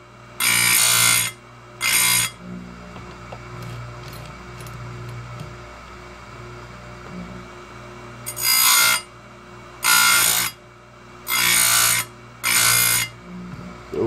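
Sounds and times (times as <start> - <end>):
chain grinder humming: 3.5 - 5.5, 8.2 - 9.1, 9.8 - 10.6, 11.2 - 13.2.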